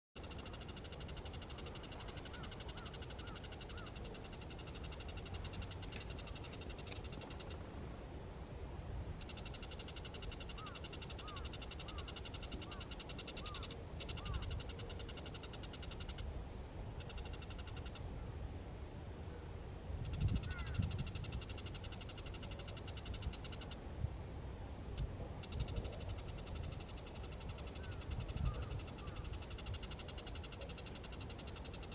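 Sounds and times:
bird's high rapid trill: 0.2s - 7.6s, 9.2s - 16.2s
soft low bird notes: 0.2s - 7.7s, 9.2s - 16.3s, 20.0s - 23.8s, 24.9s - 31.9s.

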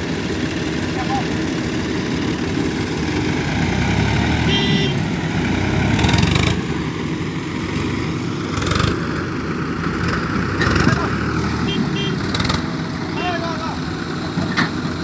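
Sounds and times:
tractor diesel engine running: 0.0s - 15.0s.

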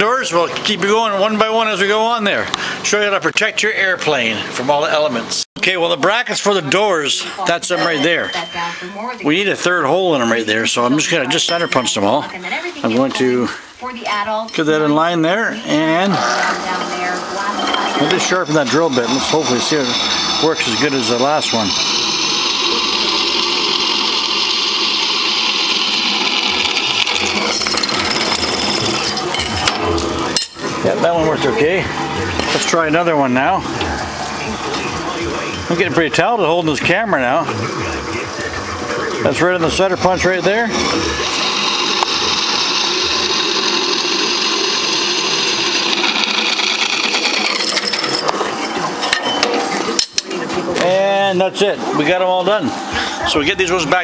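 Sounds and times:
drill press boring through metal: 15.7s - 50.9s.

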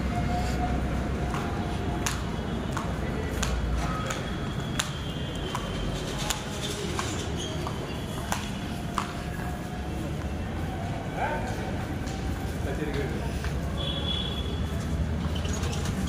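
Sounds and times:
crowded station noise: 0.0s - 16.0s.

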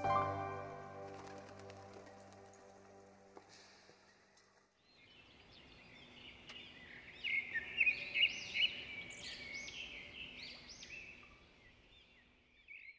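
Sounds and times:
birds chirping: 3.9s - 12.4s.

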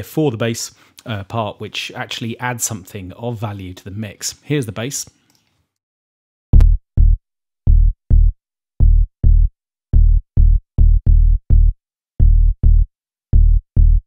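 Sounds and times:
electronic bass line: 6.6s - 14.0s.

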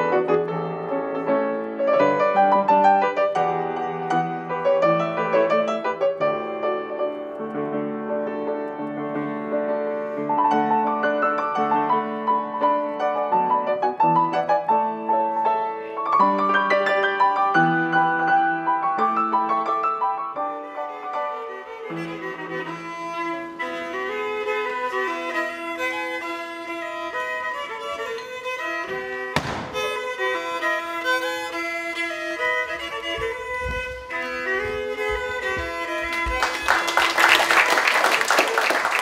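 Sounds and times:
fiddle playing dance tune: 0.0s - 37.2s
sharp knock: 29.3s - 30.2s
low thumps: 29.4s - 30.2s
applause: 36.2s - 39.0s.

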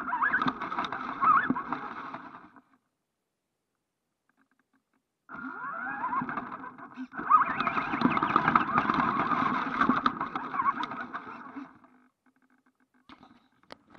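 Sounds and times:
toy truck electric motor whining: 0.0s - 2.5s, 5.3s - 11.8s.

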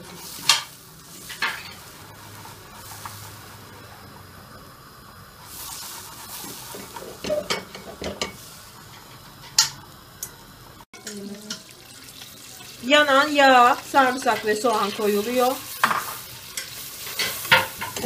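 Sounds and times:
butter sizzling faintly: 0.0s - 18.0s
ladle stirring pot: 5.5s - 9.8s, 13.5s - 18.0s.

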